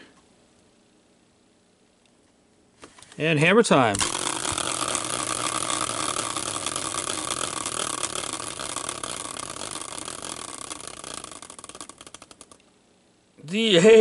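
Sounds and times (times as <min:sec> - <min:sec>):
spinning wheel whirring and ticking: 0:03.8 - 0:12.6.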